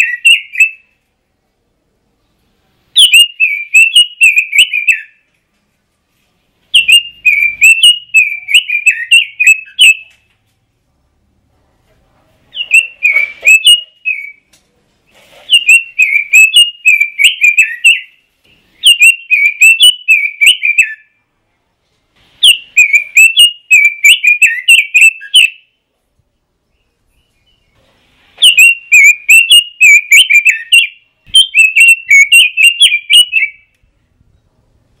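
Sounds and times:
bird warbling song: 0:00.0 - 0:00.9, 0:03.0 - 0:05.2, 0:06.7 - 0:10.2, 0:12.5 - 0:14.5, 0:15.4 - 0:21.2, 0:22.4 - 0:25.8, 0:28.4 - 0:33.7.

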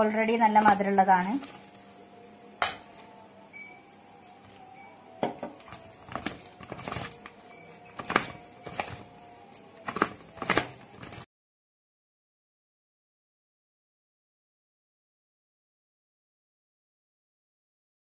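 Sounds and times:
spoon stirring batter in metal bowl: 0:04.2 - 0:11.3.

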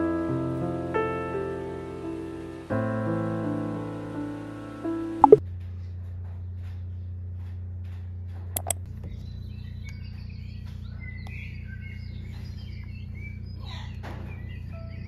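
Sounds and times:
small birds chirping: 0:08.6 - 0:15.0.

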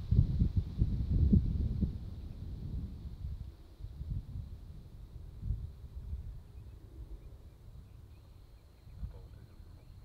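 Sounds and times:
wind rumbling on microphone: 0:00.0 - 0:10.0
distant propeller aircraft: 0:04.5 - 0:10.0
faint bird chirps: 0:06.0 - 0:10.0.

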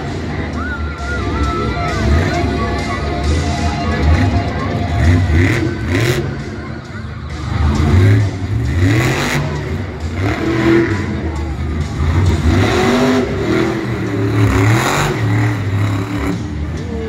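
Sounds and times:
monster truck engine revving: 0:00.0 - 0:17.0.

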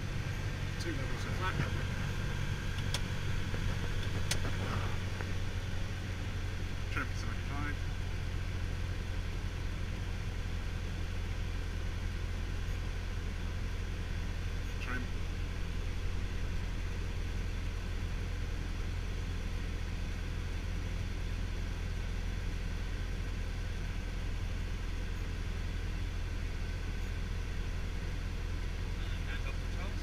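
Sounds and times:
light aircraft engine droning: 0:00.0 - 0:30.0.

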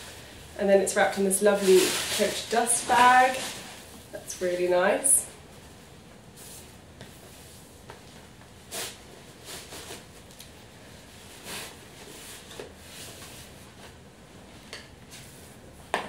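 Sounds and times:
fabric bag rustling: 0:01.2 - 0:04.3.

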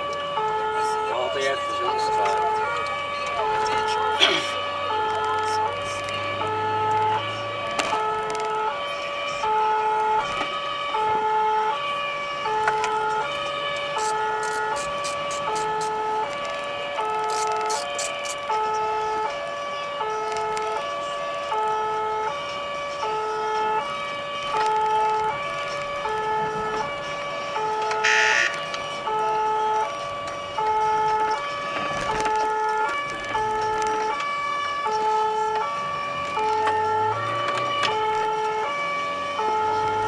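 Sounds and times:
engine and road noise: 0:00.0 - 0:40.0
two-tone emergency siren: 0:00.0 - 0:40.0.

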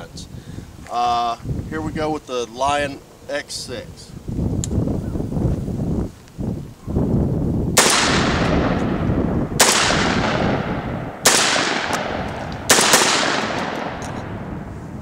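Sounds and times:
shotgun shots with echo: 0:07.8 - 0:09.0, 0:09.6 - 0:14.5.

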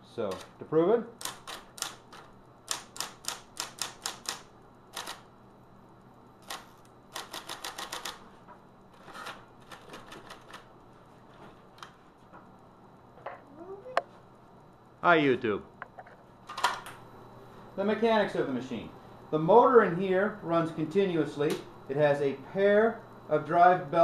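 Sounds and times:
faint typewriter motor hum: 0:00.0 - 0:05.7, 0:06.3 - 0:11.1
typewriter key strikes: 0:02.7 - 0:04.4.

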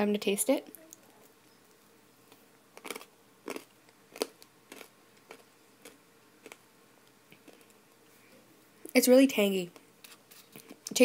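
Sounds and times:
faint crunches of chewing candy: 0:02.3 - 0:08.2.

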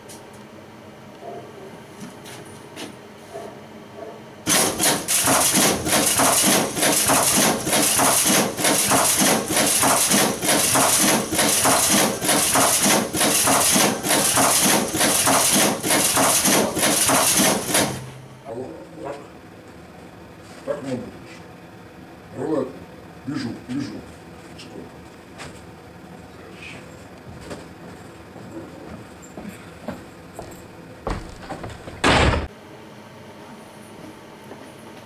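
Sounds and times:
machine clattering with hiss: 0:04.5 - 0:18.1.

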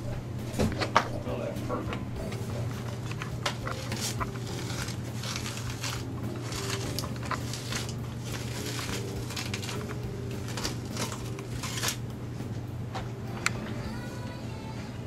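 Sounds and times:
steady low hum: 0:00.0 - 0:15.0
rubber mold rustling and scraping: 0:02.3 - 0:12.0.

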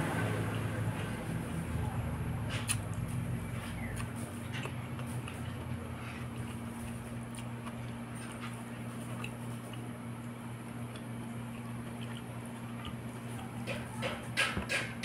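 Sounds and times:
steady low hum: 0:00.0 - 0:15.0
quiet chewing: 0:02.4 - 0:14.2.

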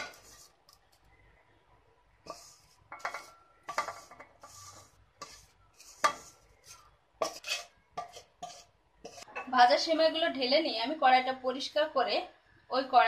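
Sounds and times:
spatula scraping metal pan: 0:00.0 - 0:00.6, 0:02.2 - 0:09.4.

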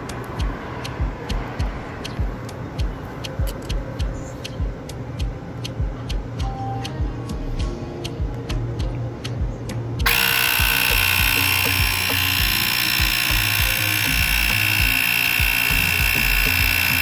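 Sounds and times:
air compressor whining: 0:10.0 - 0:17.0.

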